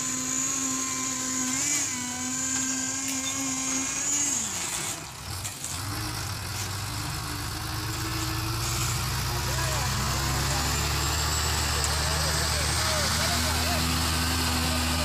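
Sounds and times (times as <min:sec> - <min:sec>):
high-pitched engine whine: 0:00.0 - 0:15.0
diesel truck engine rumble: 0:03.4 - 0:15.0.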